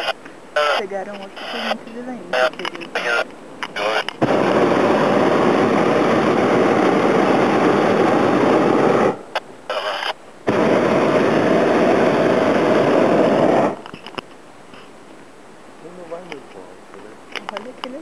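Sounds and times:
propane burner roaring blasts: 3.8 - 14.0.

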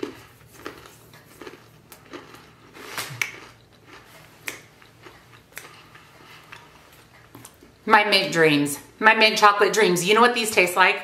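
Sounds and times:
person chewing crunchy cookies: 0.0 - 7.8.

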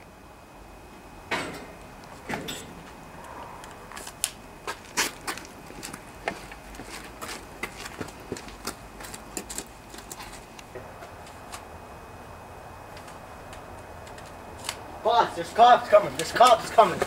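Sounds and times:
footsteps: 3.6 - 11.6.

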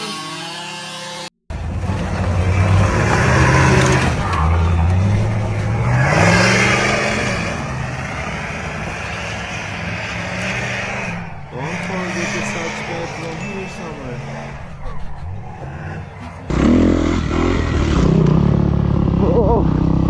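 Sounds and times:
truck engine revving: 0.0 - 20.0.

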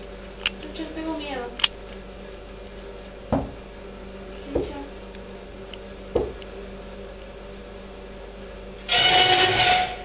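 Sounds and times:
steady low hum: 0.0 - 9.0
knocking on a wooden door: 3.3 - 3.6, 6.2 - 6.4.

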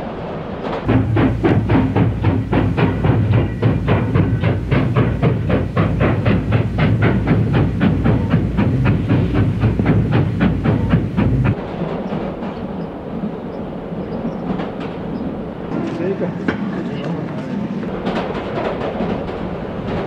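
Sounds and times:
steam locomotive chugging: 0.8 - 20.0.

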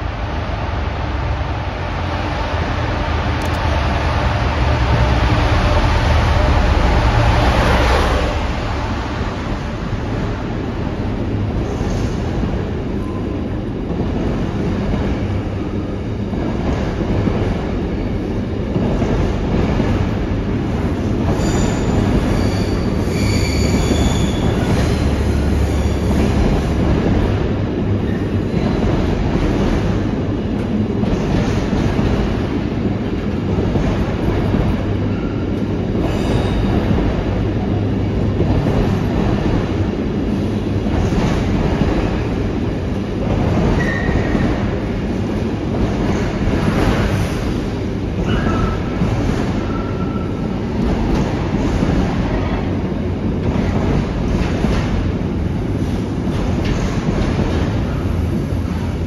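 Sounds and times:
diesel locomotive engine: 0.0 - 59.0
train wheels squealing: 21.3 - 26.4, 36.0 - 36.9, 43.7 - 44.7, 48.2 - 50.5.

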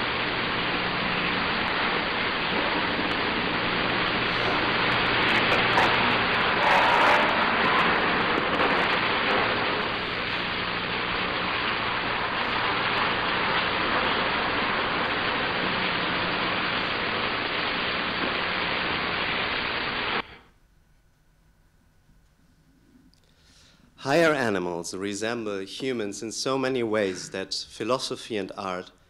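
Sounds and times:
steady rushing hiss: 0.0 - 20.4
low hum: 0.0 - 23.3.

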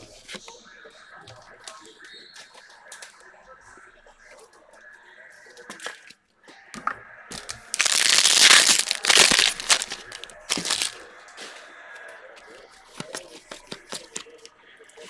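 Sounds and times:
plastic wrapper crinkling: 7.3 - 11.0.

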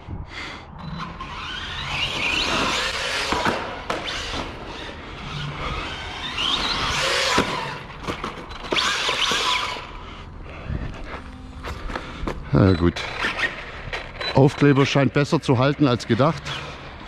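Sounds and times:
electric motor whining: 0.8 - 10.0.

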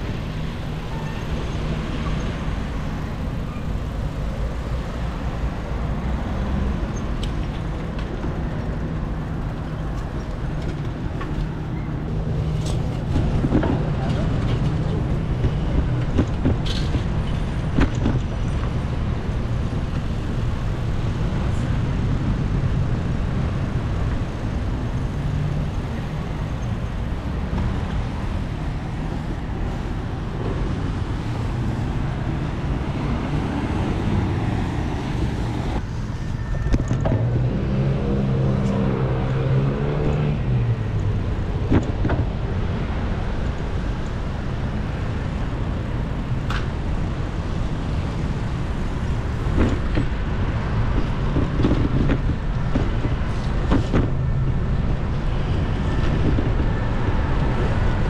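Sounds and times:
vehicle engine droning: 0.0 - 58.0
wind and tyre rumble: 0.0 - 58.0.

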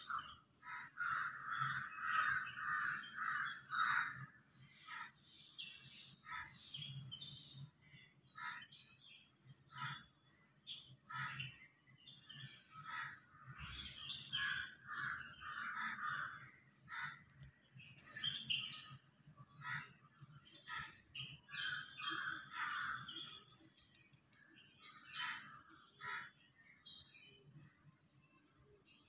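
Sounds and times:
crows cawing: 0.0 - 5.2, 6.2 - 6.6, 8.4 - 8.7, 9.7 - 10.1, 11.1 - 11.5, 12.7 - 17.4, 19.6 - 20.0, 20.6 - 23.4, 25.1 - 26.4
bird chirps: 17.6 - 19.2.

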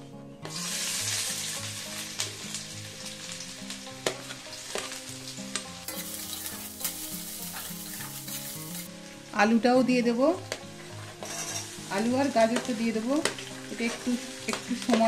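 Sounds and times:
onions sizzling in hot oil: 0.4 - 15.0.

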